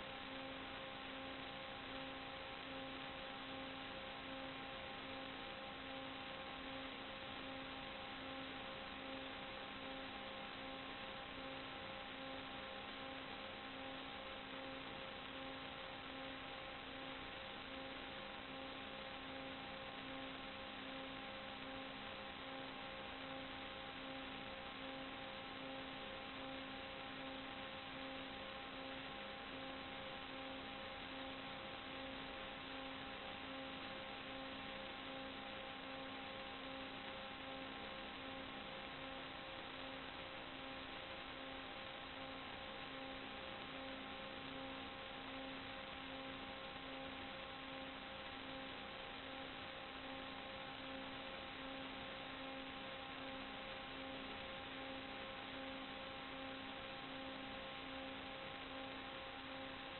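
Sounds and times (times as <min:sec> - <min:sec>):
electrical hum tones: 0:00.0 - 0:59.9
pulsing electrical hum: 0:00.0 - 0:59.9
steady hiss: 0:00.0 - 0:59.9.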